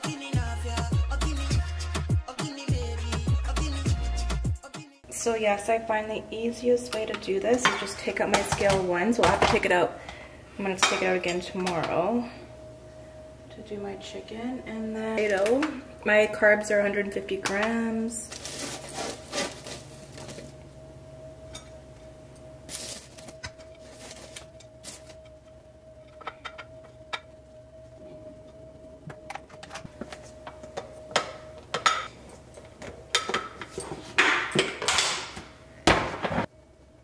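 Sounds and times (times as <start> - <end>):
faint steady hum: 5.0 - 37.0
utensils clinking against dishes: 7.0 - 9.6.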